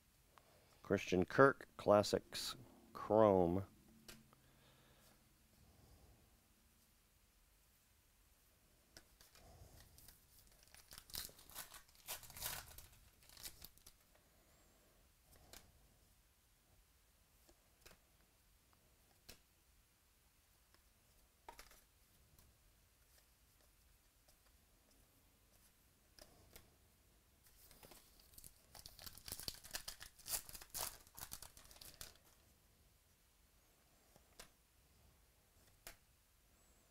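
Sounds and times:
wrapper tearing and crinkling: 10.0 - 14.0, 27.9 - 32.4.

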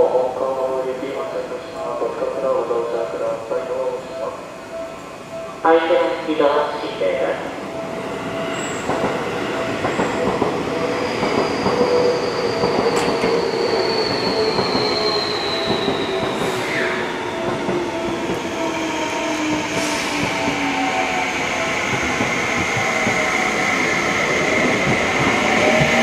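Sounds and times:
train running rumble: 21.6 - 26.0.

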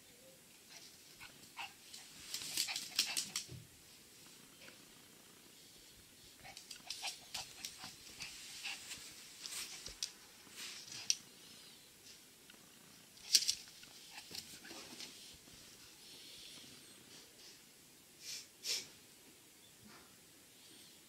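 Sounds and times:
puppy clicks and rustles: 0.7 - 3.6, 6.4 - 11.2, 13.2 - 15.4.

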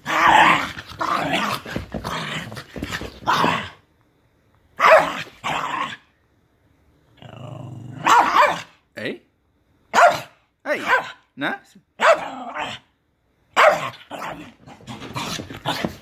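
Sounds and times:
dog play-growling: 0.0 - 3.8, 13.9 - 16.0
dog barking: 4.8 - 5.3, 8.0 - 8.8, 9.9 - 11.3, 12.0 - 12.7, 13.6 - 14.4.

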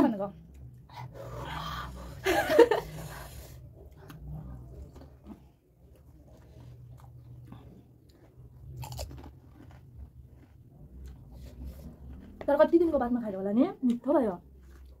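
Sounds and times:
crunchy food being chewed: 3.8 - 13.0, 14.5 - 15.0.

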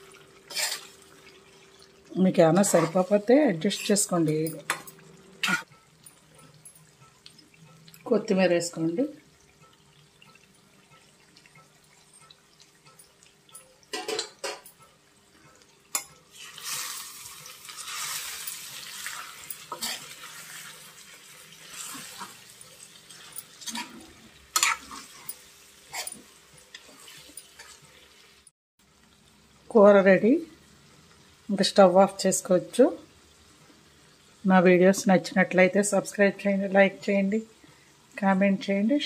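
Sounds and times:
spoon scraping metal pan: 0.5 - 0.9, 2.5 - 5.7, 17.7 - 21.0, 21.6 - 27.8.

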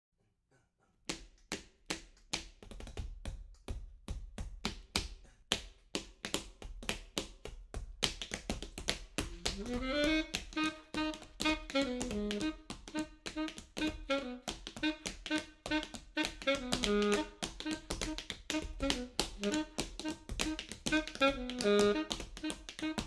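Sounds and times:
tap shoes on wooden floor: 2.4 - 23.0
saxophone rising note: 9.3 - 15.0, 15.7 - 17.9, 18.5 - 22.1.

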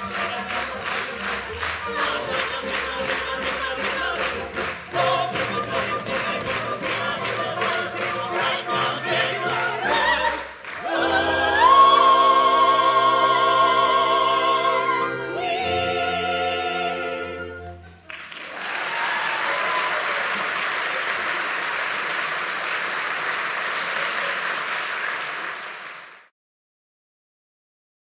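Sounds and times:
audience applause: 0.0 - 3.3, 4.2 - 12.1, 18.0 - 26.3
operetta voices with orchestra: 0.0 - 18.0.

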